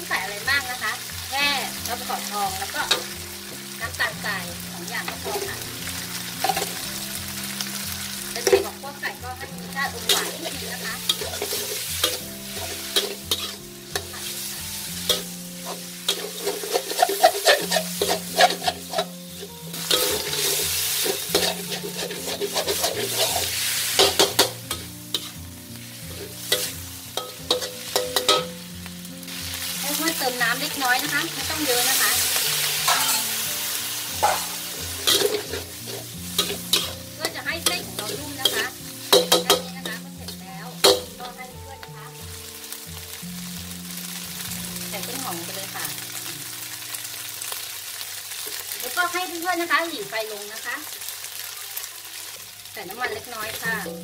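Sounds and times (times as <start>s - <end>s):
food sizzling: 0.0s - 54.0s
metal spatula scraping wok: 5.0s - 7.4s, 9.6s - 42.7s.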